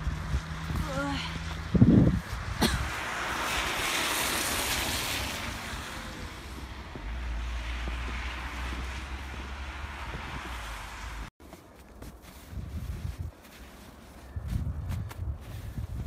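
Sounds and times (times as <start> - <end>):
wind rumble on microphone: 0.0 - 11.3, 12.1 - 16.0
car tyres hissing on wet road: 2.9 - 11.3.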